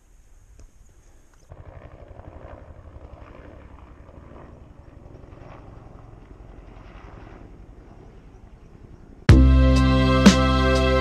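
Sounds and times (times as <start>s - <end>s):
wind buffeting microphone: 1.4s - 9.3s.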